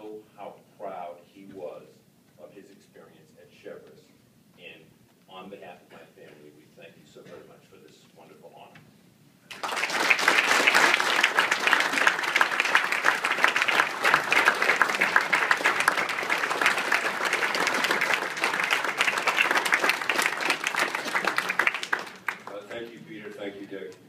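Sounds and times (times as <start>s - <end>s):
large audience applauding: 9.5s - 23.1s.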